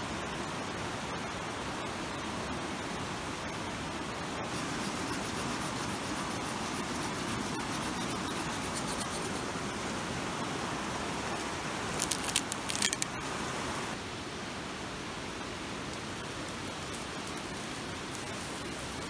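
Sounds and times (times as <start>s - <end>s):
knife scraping wood: 4.5s - 9.4s
sharp crackles: 11.4s - 13.3s, 15.9s - 19.0s.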